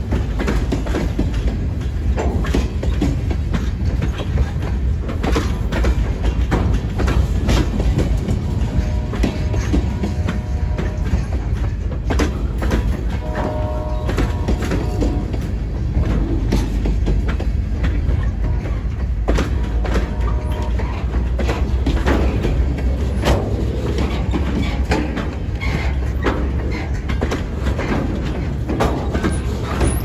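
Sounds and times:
freight train rumbling past: 0.0 - 30.0
wheels clicking over rail joints: 0.0 - 30.0
distant locomotive horn: 8.6 - 11.6, 13.0 - 16.8, 18.3 - 22.2.

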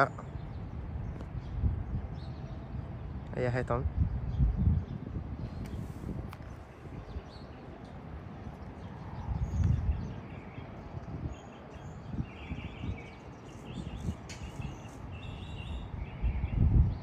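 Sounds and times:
wind rumble on microphone: 0.0 - 17.0
high bird chirps: 6.4 - 17.0.

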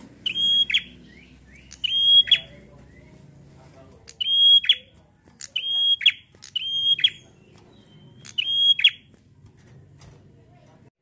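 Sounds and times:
bird whistling calls: 0.2 - 3.1, 4.1 - 9.1.

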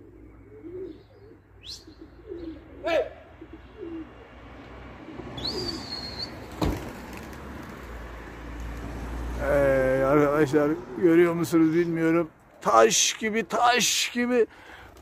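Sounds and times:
pigeons cooing: 0.0 - 7.5.

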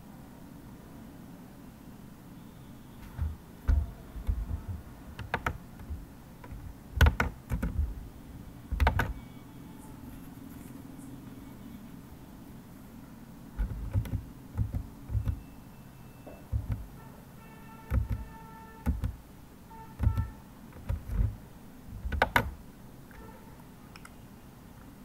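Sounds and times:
low background hum: 0.0 - 25.0
keyboard typing: 3.0 - 8.0, 8.7 - 9.2, 13.6 - 15.5, 16.3 - 17.0, 17.8 - 19.2, 19.9 - 23.2
mouse clicks: 23.9 - 24.2.

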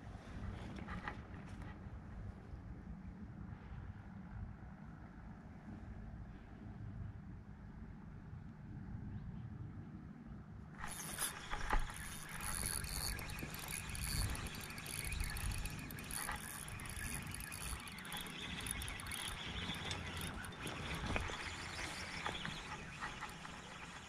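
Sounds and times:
fishing reel whirring: 10.8 - 24.0.

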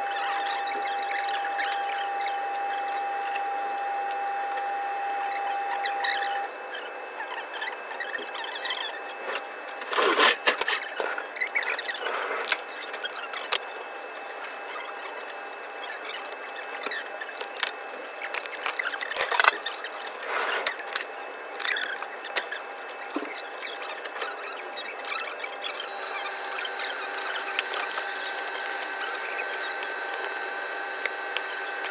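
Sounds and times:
utensils and trays clattering: 9.3 - 13.6.

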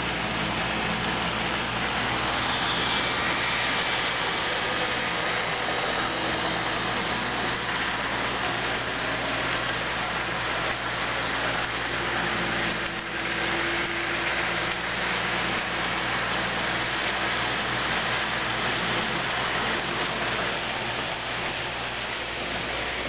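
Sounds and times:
model train motors whirring: 0.0 - 23.0
wheels rolling on rails: 0.0 - 23.0.

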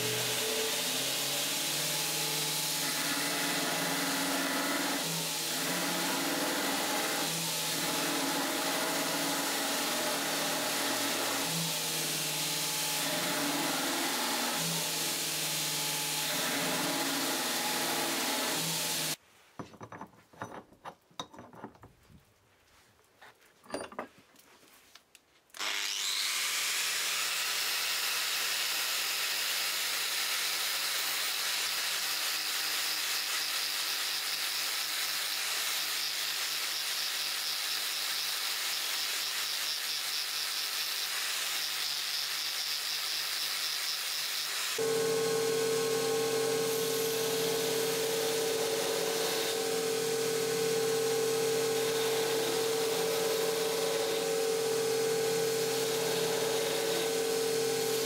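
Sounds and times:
angle grinder grinding steel: 32.8 - 58.0.

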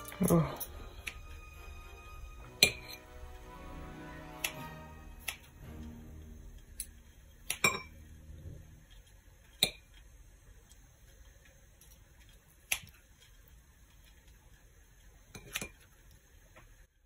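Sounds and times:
metal clinking against glass bowl: 7.6 - 8.0.

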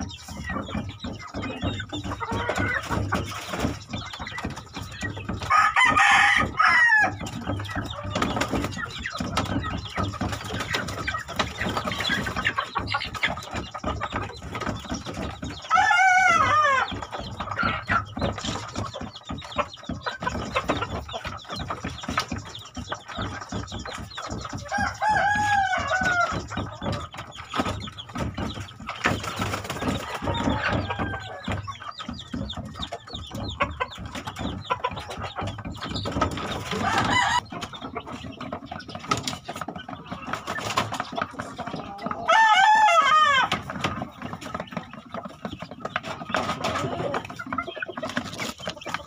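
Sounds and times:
scattered clatter: 0.0 - 42.7
chicken clucking: 0.0 - 49.0
rooster crowing: 5.5 - 7.2, 30.1 - 31.4, 42.3 - 43.5.

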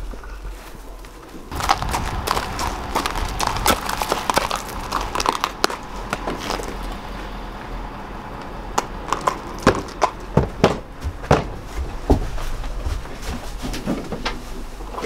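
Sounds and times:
hooves knocking in metal trailer: 1.5 - 7.3, 8.7 - 14.4
horse hooves clopping on pavement: 1.5 - 7.4, 8.4 - 13.5.

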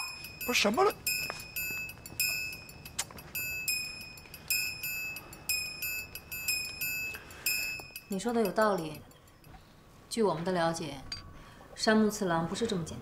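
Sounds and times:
tinkling chime-like music: 0.0 - 9.5.

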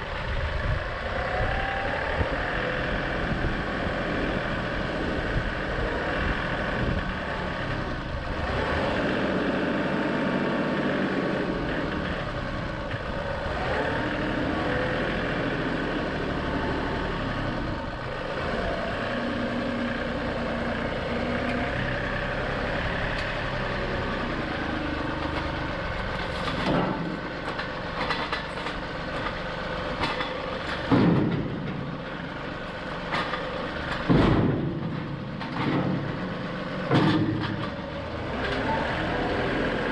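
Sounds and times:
tractor diesel engine running: 0.0 - 39.9
metal clanks and knocks: 25.2 - 32.0, 33.0 - 38.6
log thumping into metal trailer: 26.2 - 28.5, 30.0 - 31.9, 33.1 - 37.8.

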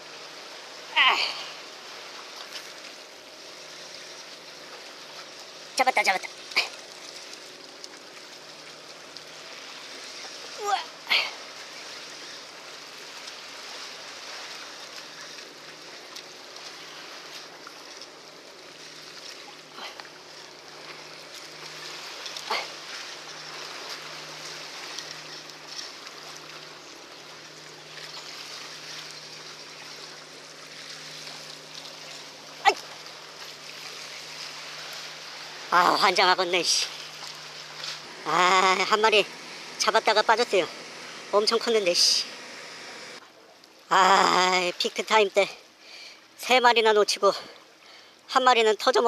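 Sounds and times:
sea water lapping: 0.0 - 49.0.

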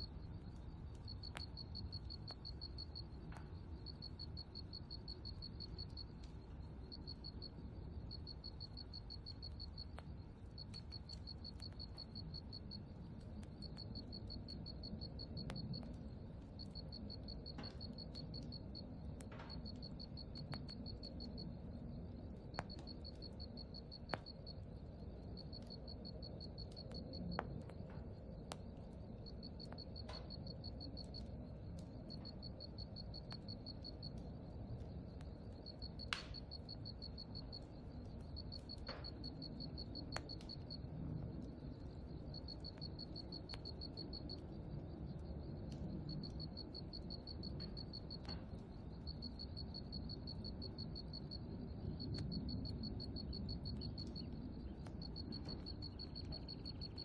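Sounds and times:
faint sharp ticks: 0.0 - 57.0
insect chirping: 0.0 - 57.0
low outdoor rumble: 0.0 - 57.0.

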